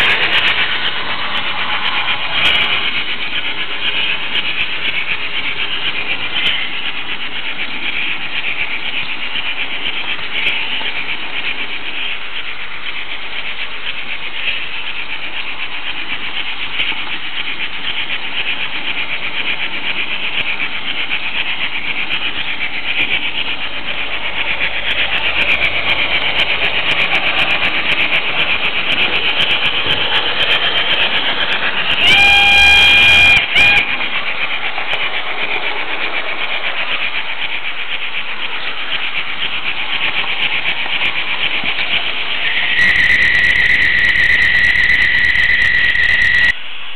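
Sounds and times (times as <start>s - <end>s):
model train running on track: 0.0s - 46.9s
locomotive signal note: 32.0s - 33.9s, 42.5s - 46.6s.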